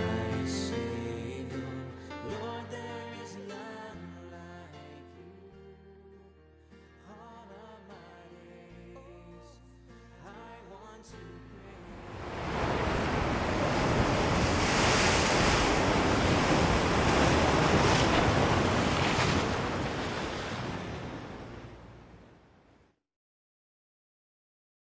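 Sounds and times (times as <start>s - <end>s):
ocean waves: 11.8s - 22.5s
wind: 12.0s - 22.4s.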